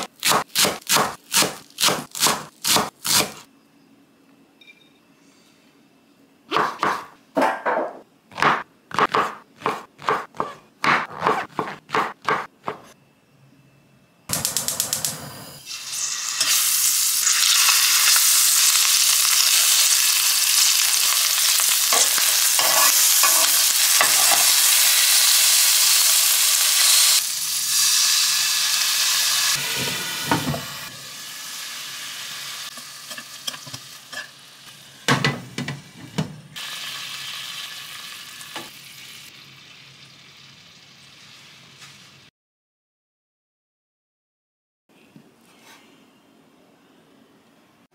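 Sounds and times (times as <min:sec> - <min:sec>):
fish roe sizzling in hot oil: 0:15.7 - 0:29.6, 0:36.6 - 0:42.3.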